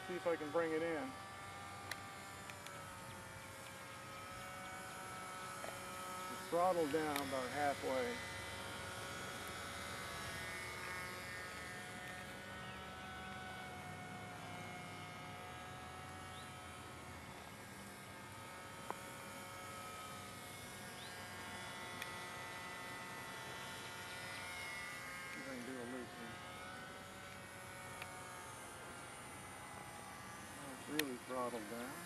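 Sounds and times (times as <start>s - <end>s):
small electric propeller buzzing: 0.0s - 32.0s.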